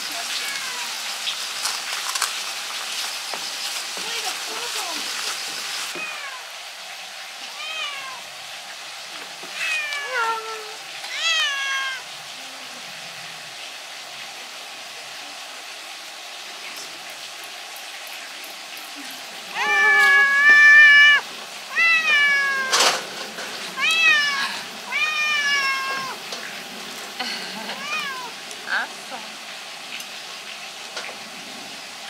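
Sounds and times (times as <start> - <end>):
cat meowing: 0.1 - 1.1, 5.9 - 6.6, 7.5 - 8.4, 9.5 - 12.2, 19.5 - 23.1, 23.7 - 26.3, 27.7 - 28.4.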